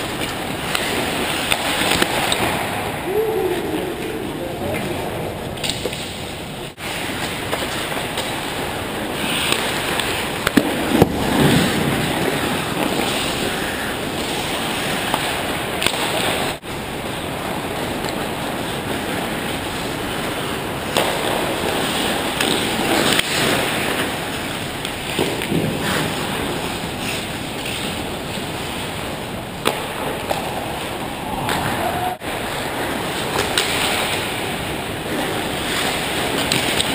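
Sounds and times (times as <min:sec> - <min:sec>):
hockey sticks and puck clacking: 0:00.0 - 0:02.8, 0:05.6 - 0:06.3, 0:06.9 - 0:16.6, 0:17.9 - 0:28.4, 0:29.6 - 0:31.7, 0:33.1 - 0:34.5, 0:35.1 - 0:36.9
skate blades scraping ice: 0:05.6 - 0:16.6, 0:19.7 - 0:28.5.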